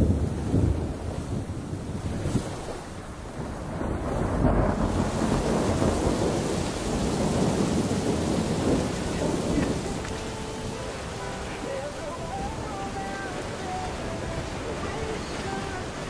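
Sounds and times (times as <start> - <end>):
wind and sea rushing: 0.0 - 16.0
wind buffeting microphone: 0.0 - 16.0.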